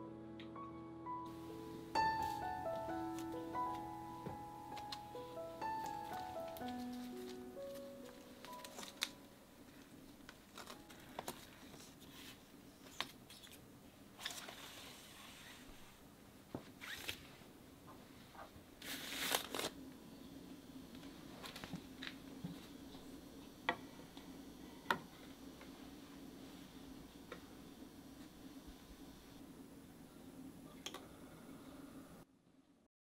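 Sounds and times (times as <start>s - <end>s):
record sleeves sliding and rustling: 5.7s - 9.2s, 10.3s - 13.6s, 14.2s - 16.0s, 16.6s - 17.4s, 18.3s - 19.8s.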